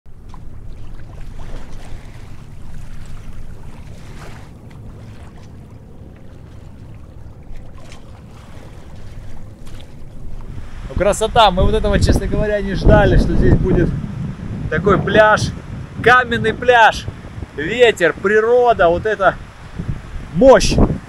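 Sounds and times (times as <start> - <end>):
sea waves on stony shore: 0.1 - 11.3
wind buffeting microphone: 0.1 - 21.0.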